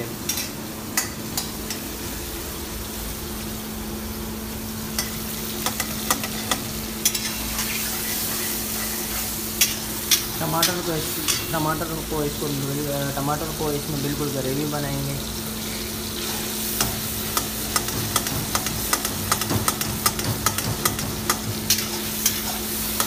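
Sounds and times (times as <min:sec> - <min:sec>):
vegetables sizzling in oil: 0:00.0 - 0:23.0
spatula clicking on wok: 0:16.8 - 0:23.0.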